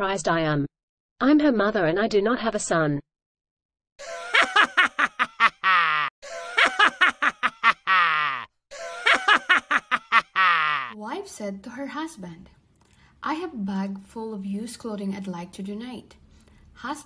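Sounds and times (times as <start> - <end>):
recorded laughter: 4.0 - 11.0.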